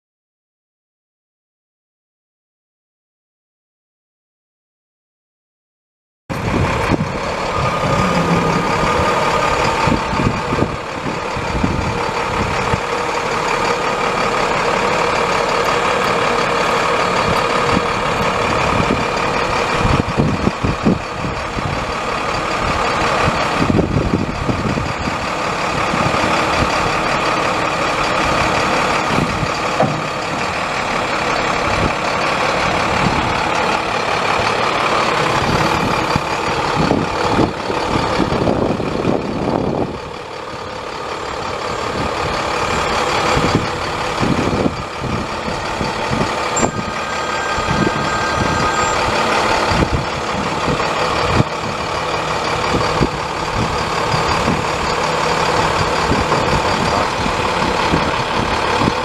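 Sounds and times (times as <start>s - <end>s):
diesel truck engine idling: 6.3s - 59.0s.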